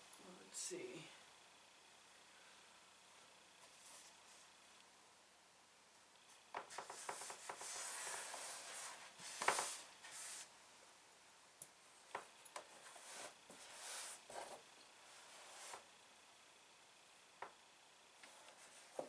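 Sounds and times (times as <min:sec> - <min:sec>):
fabric rustling and brushing: 0:03.6 - 0:04.5, 0:06.6 - 0:10.5, 0:12.6 - 0:15.9.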